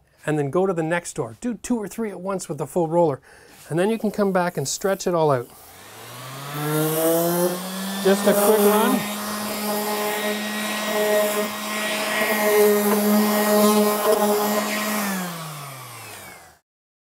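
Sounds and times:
orbital sander running: 4.8 - 16.6.

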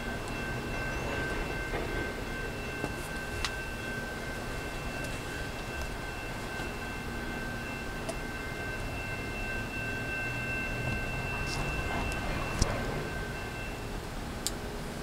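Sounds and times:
train rumbling over bridge: 0.0 - 15.0.

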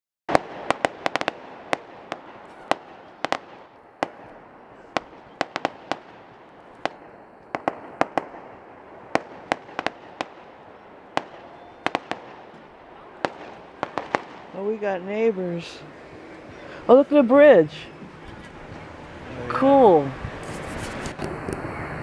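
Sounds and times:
fireworks crackling hiss: 0.3 - 17.0
fireworks bangs: 0.3 - 22.0.

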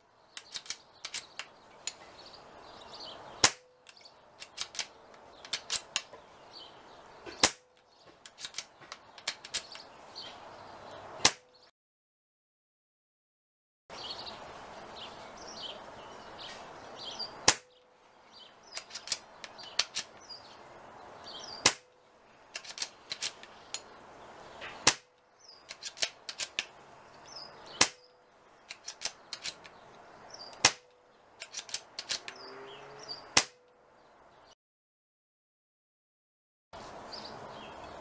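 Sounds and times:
rifle clicks: 0.4 - 2.0, 3.4 - 6.2, 7.4 - 9.9, 18.7 - 20.2, 21.6 - 23.9, 24.8 - 26.8, 28.7 - 29.8, 30.5 - 32.4
air rifle shots: 3.4 - 3.8, 7.3 - 8.7, 11.2 - 11.5, 17.4 - 17.8, 21.5 - 22.0, 24.6 - 25.1, 27.7 - 28.1, 30.5 - 32.2, 33.3 - 33.6.

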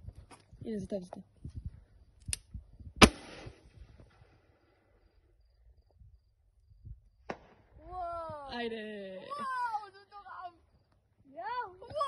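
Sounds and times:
rifle shot: 3.0 - 3.8, 7.3 - 7.6.

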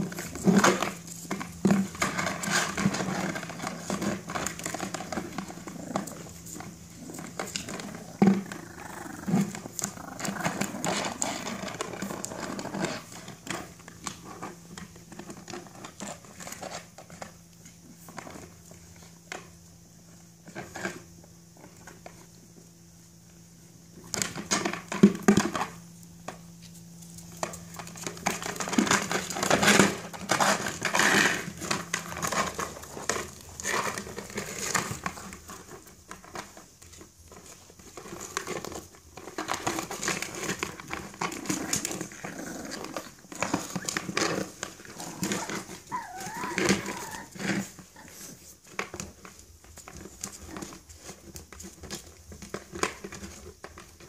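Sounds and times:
plastic pot scraping on paving: 0.0 - 17.2, 27.4 - 36.6, 37.3 - 53.7
small dog noises: 0.0 - 19.2, 39.8 - 48.7.

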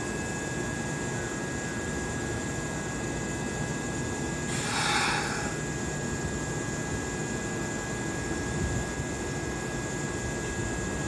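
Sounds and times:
electric train humming: 4.4 - 5.8.

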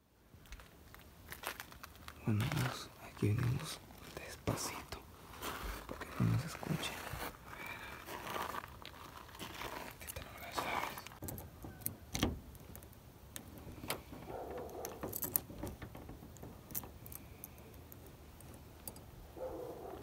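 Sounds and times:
car keys jingling: 10.0 - 20.0
key clicking into lock: 13.9 - 15.8.

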